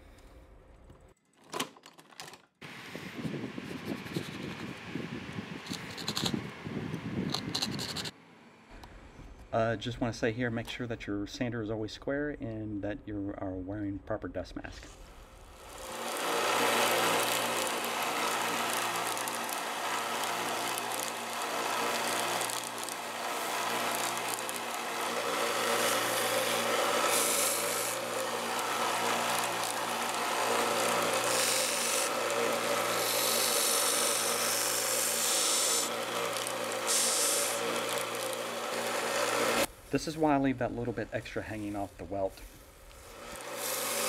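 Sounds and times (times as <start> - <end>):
belt sander motor hum: 3.2 - 8.1, 15.4 - 39.7, 42.8 - 44.0
belt sanding leather hiss: 15.6 - 40.0, 42.3 - 44.0.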